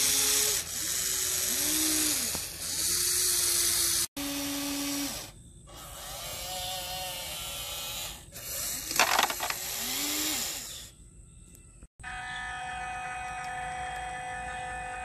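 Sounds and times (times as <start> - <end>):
small electric motors whining: 0.0 - 11.0
rocks clattering into toy truck: 8.8 - 9.6.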